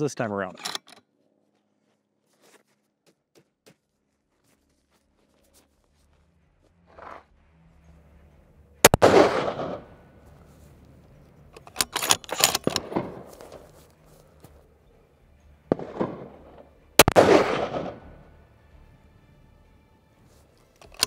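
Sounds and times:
rifle shots with echo: 8.8s - 10.0s, 12.4s - 13.6s, 15.7s - 18.2s
rifle bolt clicking: 11.6s - 13.6s, 20.7s - 21.0s.

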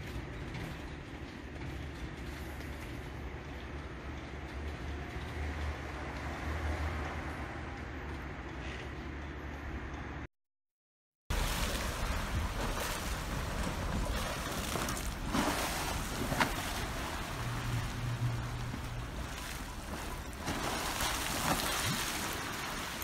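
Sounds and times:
pool water sloshing and splashing: 11.3s - 23.0s.

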